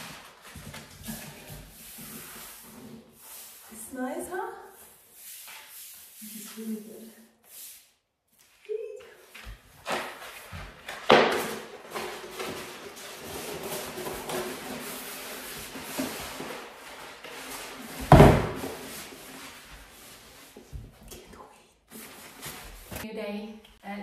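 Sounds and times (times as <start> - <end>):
wallpaper rustling and crackling: 0.0 - 3.9, 8.4 - 21.2, 21.9 - 23.1.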